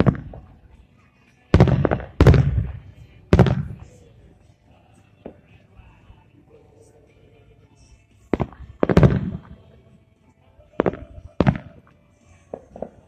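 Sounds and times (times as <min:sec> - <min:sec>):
fireworks booming: 0:00.0 - 0:00.5, 0:01.6 - 0:04.0, 0:08.3 - 0:09.7, 0:10.8 - 0:11.8.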